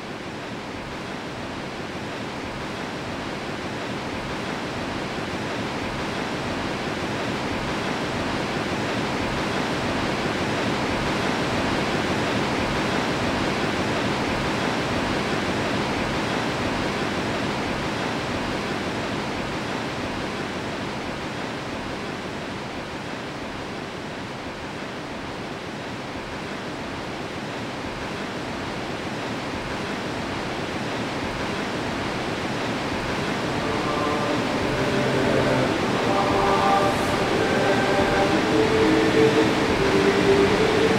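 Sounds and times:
turbulent white water rushing: 0:28.0 - 0:40.9.

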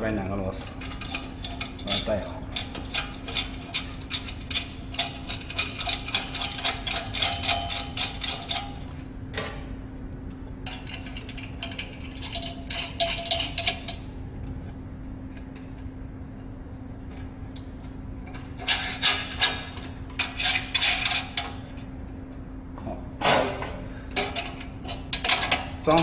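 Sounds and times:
steady low hum: 0:00.0 - 0:26.0
small metal parts clicking: 0:00.4 - 0:08.8.

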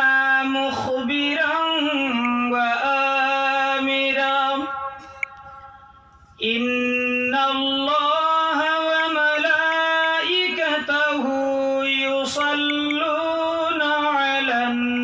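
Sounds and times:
man chanting into a microphone: 0:00.0 - 0:05.2, 0:06.4 - 0:15.0.

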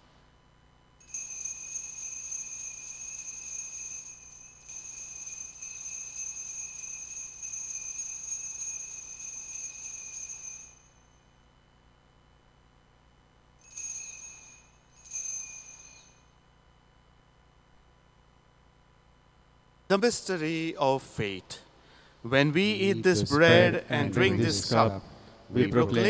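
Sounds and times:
altar bells jingling: 0:01.0 - 0:11.2, 0:13.6 - 0:16.3.

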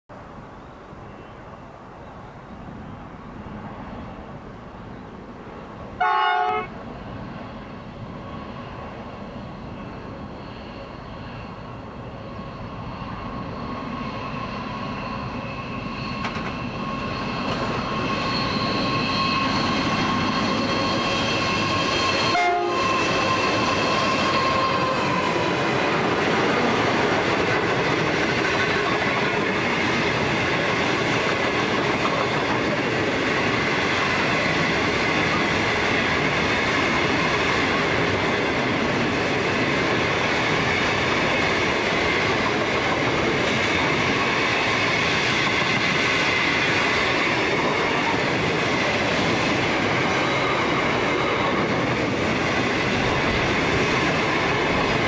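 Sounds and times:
freight train engine and wheels: 0:00.1 - 0:55.0
train horn blast: 0:06.0 - 0:06.8, 0:21.4 - 0:25.0
steel wagons rolling past: 0:10.2 - 0:55.0.

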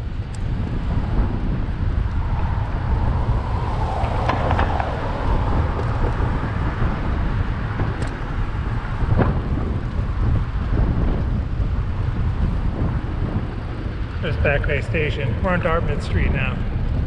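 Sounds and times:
wind buffeting microphone: 0:00.0 - 0:17.0
car traffic going by: 0:01.7 - 0:07.6.

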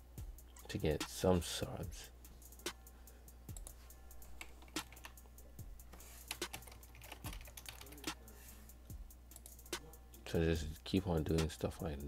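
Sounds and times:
computer keyboard typing: 0:04.4 - 0:05.2, 0:06.3 - 0:08.2.

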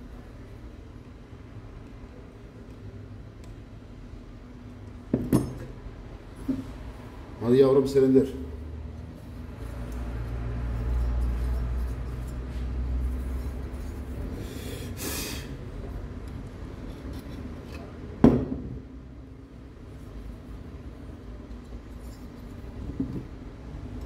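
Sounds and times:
short hiss: 0:14.4 - 0:15.6.

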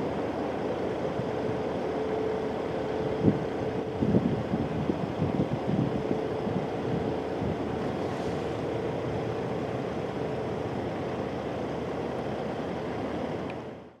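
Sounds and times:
jet engines roaring: 0:00.0 - 0:13.8
wind buffeting microphone: 0:03.0 - 0:09.7.

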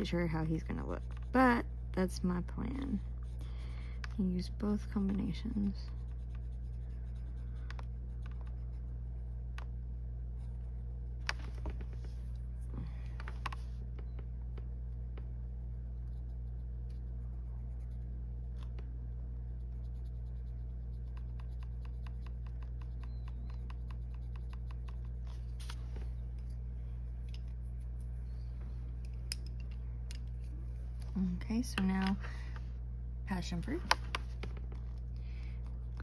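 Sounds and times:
steady low hum: 0:00.0 - 0:36.0
pencil scratching on paper: 0:05.0 - 0:07.5.

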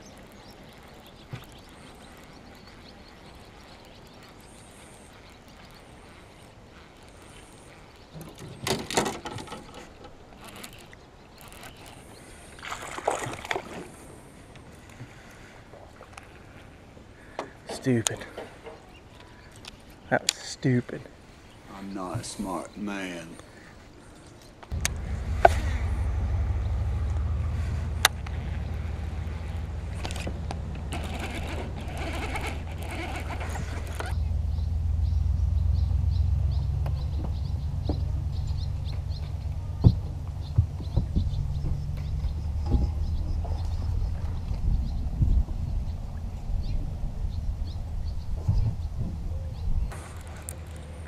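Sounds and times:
electric trolling motor humming: 0:00.0 - 0:08.4, 0:24.7 - 0:40.4
fishing reel clicking and rattling: 0:10.4 - 0:12.0, 0:30.9 - 0:34.2.

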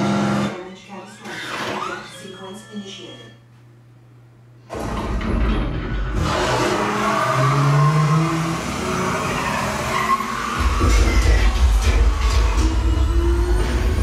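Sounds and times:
action film sound effects: 0:04.7 - 0:14.0.

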